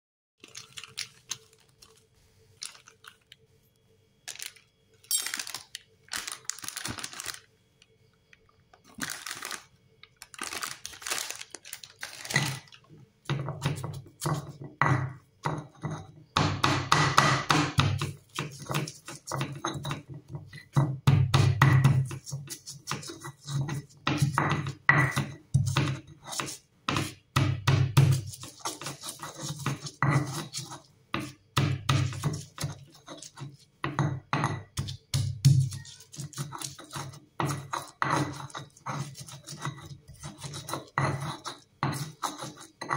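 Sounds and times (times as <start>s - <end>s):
pestle scraping on stone: 15.4s - 42.9s
stone pestle knocking: 16.4s - 18.1s.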